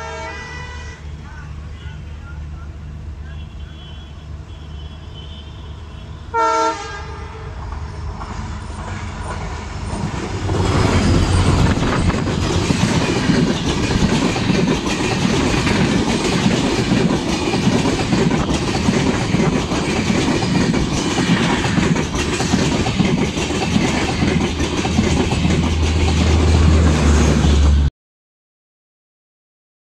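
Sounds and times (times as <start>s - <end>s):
locomotive horn blast: 0.0s - 2.4s, 3.2s - 7.6s
locomotive engines rumbling: 0.0s - 27.9s
train wheels clattering over rails: 7.6s - 27.9s.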